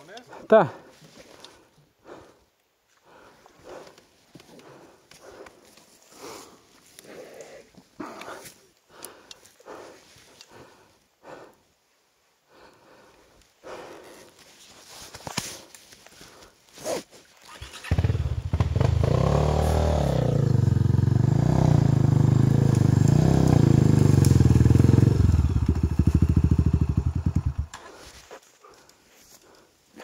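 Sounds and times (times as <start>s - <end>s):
dirt bike engine revving: 17.6s - 27.8s.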